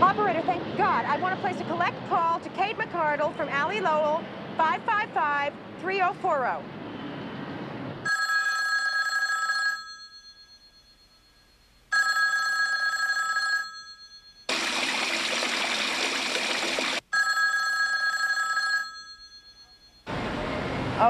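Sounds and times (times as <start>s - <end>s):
telephone ringing: 8.1s - 14.8s, 17.0s - 20.0s
shower running: 14.5s - 17.0s.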